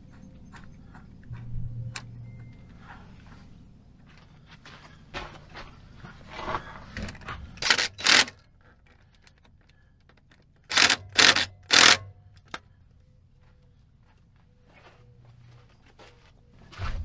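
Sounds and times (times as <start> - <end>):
power driver running bolts: 7.6 - 8.4, 10.6 - 12.6.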